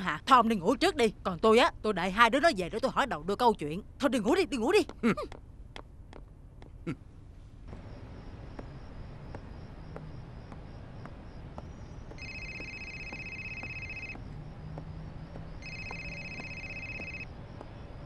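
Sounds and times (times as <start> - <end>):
telephone ringing electronically: 12.1 - 14.2, 15.6 - 17.3.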